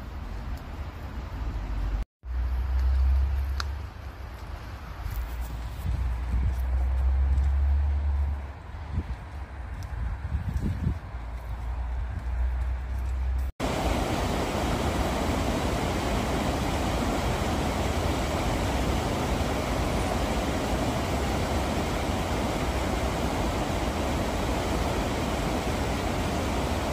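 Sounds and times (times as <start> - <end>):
river water pouring over weir: 13.6 - 26.9.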